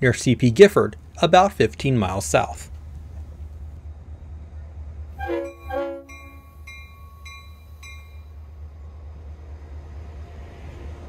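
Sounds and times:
train rumble: 0.0 - 11.0
train horn blast: 5.1 - 6.6
crossing warning bell striking: 5.2 - 8.5.

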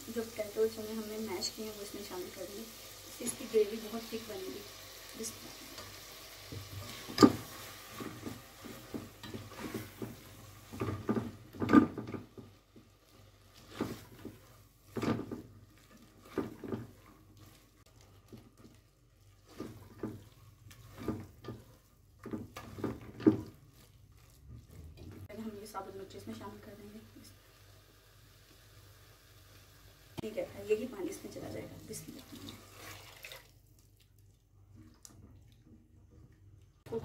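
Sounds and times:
spatula scraping and knocking a pot: 6.5 - 12.9, 13.5 - 25.3.

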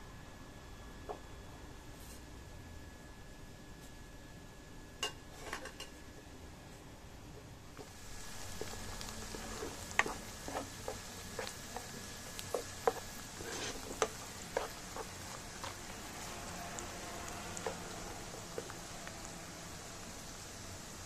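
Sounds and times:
onions sizzling in oil: 7.7 - 21.0
spoon scraping a wok: 7.8 - 19.1.

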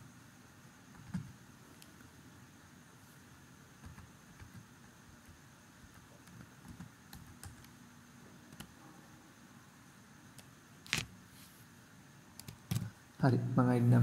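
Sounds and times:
computer keyboard keystrokes: 0.9 - 1.3, 5.9 - 7.7, 8.5 - 8.7, 12.4 - 12.9.

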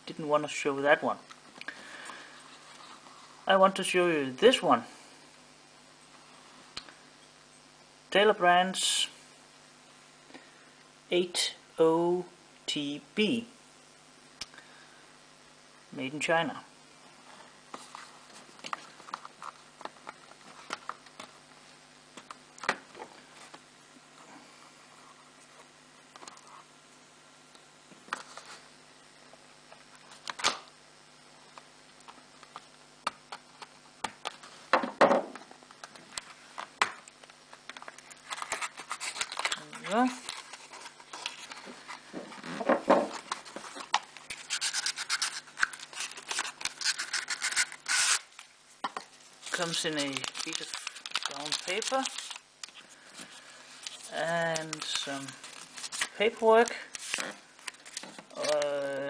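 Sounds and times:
knock on wooden table: 34.8 - 35.3
paper wrapping rustling: 37.4 - 58.7
cardboard scraping and rubbing: 38.2 - 48.2.

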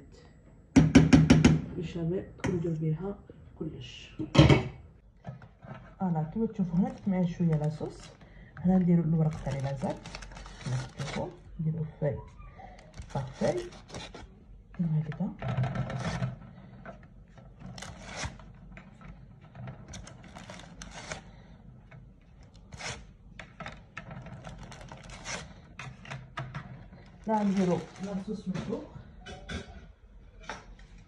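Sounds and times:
low steady hum: 0.0 - 31.0
kitchen knocks and clicks: 0.8 - 1.7, 4.2 - 5.6.

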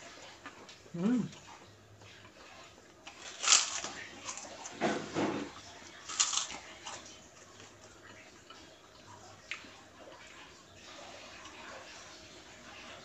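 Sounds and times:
cracker crunching: 3.0 - 8.2.

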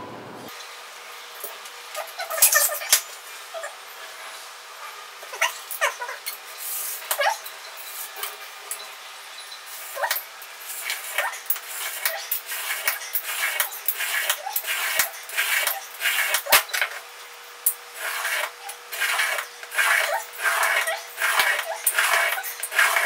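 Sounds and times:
knife scraping aluminium sheet: 11.8 - 16.7, 18.0 - 23.0.

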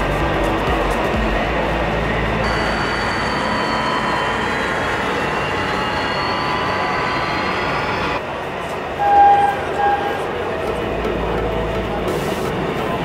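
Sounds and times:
steady background hum: 0.0 - 13.0
electric motor whine: 2.2 - 8.2.

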